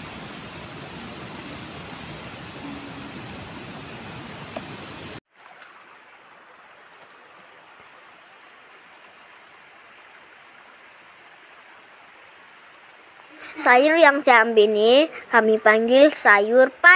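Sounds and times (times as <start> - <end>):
rush of noise: 0.0 - 5.2
faint outdoor hiss: 0.0 - 16.9.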